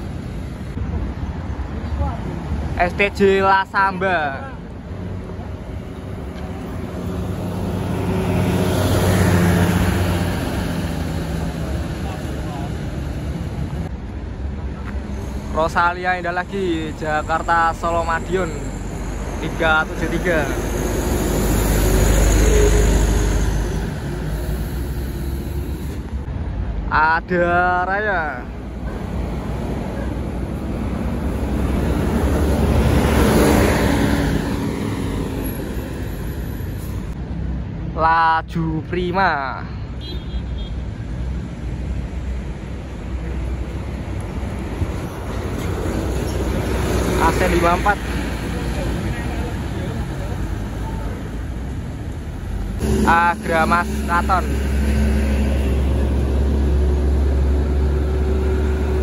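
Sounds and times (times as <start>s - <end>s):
bus diesel engine driving past: 4.6s - 26.6s, 41.1s - 59.0s.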